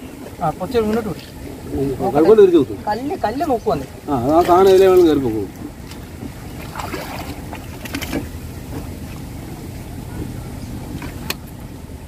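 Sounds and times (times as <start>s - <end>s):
pole splashing into water: 5.9s - 8.3s.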